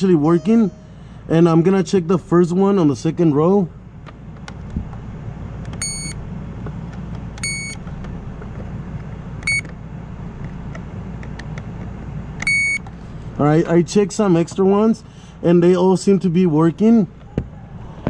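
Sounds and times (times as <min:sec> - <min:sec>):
circuit tester beeping: 0:00.0 - 0:01.5, 0:05.8 - 0:06.2, 0:07.4 - 0:07.8, 0:09.4 - 0:09.7, 0:12.4 - 0:12.8
steady low hum: 0:00.0 - 0:17.9.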